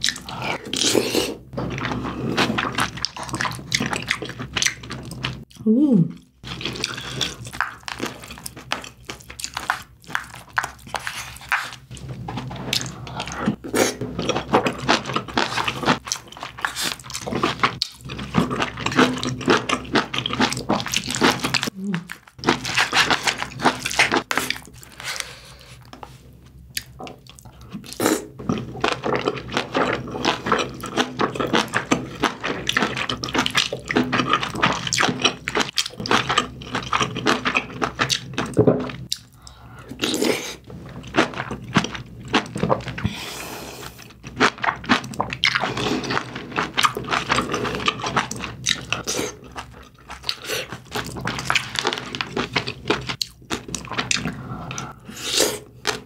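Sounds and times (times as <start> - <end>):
wet chewing: 0.0 - 43.2, 43.8 - 56.0.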